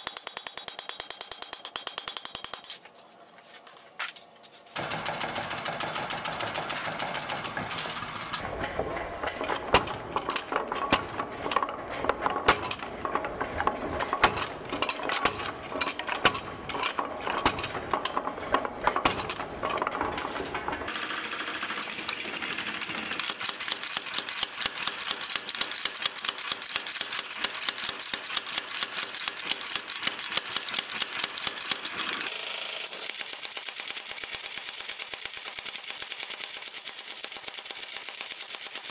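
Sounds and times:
power hammer pounding steel: 4.8s - 15.6s, 20.9s - 32.3s.

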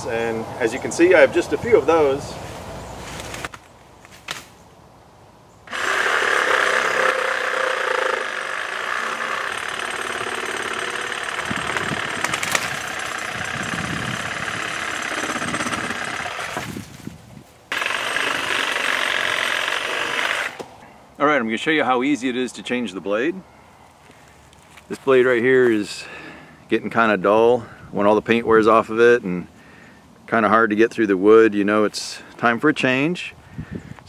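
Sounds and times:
reciprocating saw cutting branch: 5.7s - 17.0s, 17.7s - 20.7s.

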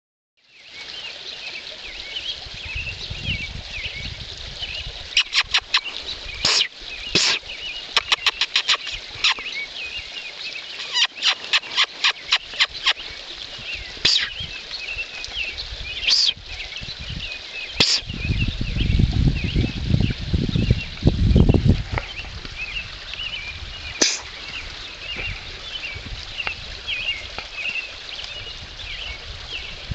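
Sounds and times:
birds chirping: 0.6s - 29.8s
loud smacking bursts: 24.0s - 24.3s.

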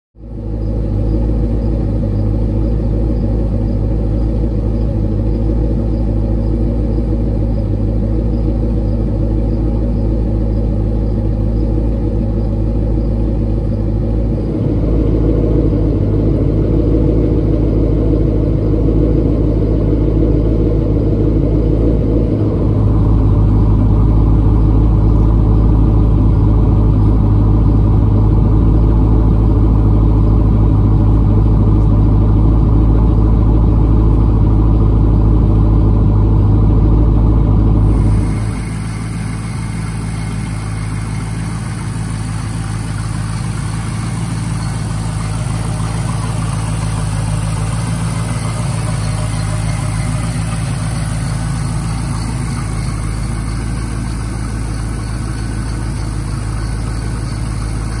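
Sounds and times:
car engine idling: 0.1s - 58.0s.

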